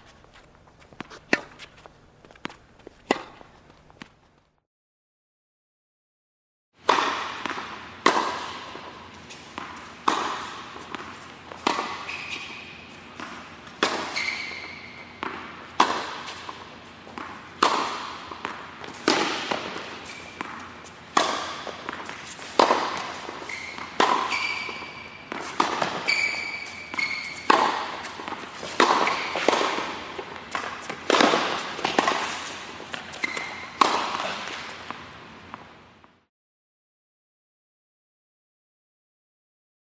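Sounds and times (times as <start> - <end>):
tennis ball bouncing: 0.0 - 4.4, 6.8 - 36.2
tennis ball struck by rackets: 1.0 - 4.2, 6.8 - 35.7.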